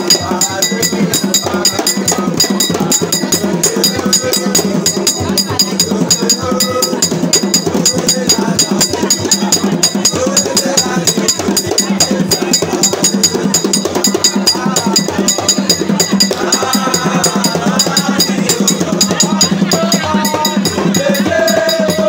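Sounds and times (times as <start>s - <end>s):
drums: 0.0s - 22.0s
voices singing: 0.0s - 22.0s.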